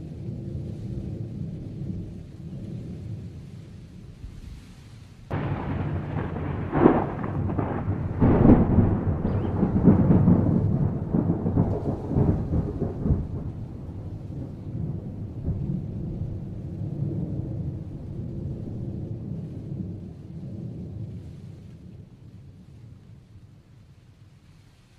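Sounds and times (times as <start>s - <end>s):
thunder crack and rumble: 5.3s - 23.2s.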